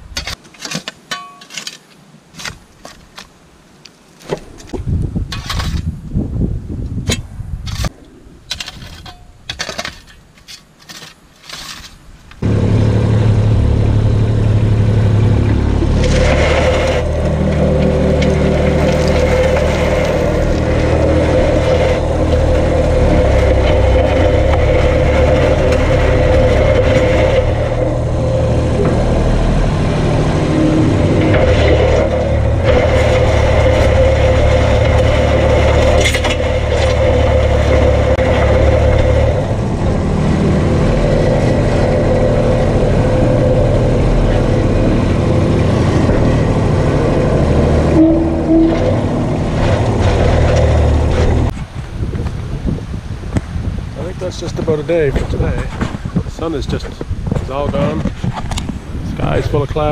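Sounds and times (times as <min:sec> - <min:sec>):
shovel scraping gravelly dirt: 0:00.0 - 0:03.4, 0:04.1 - 0:05.9, 0:07.1 - 0:12.5, 0:15.4 - 0:39.5
tractor diesel engine running: 0:12.4 - 0:52.0.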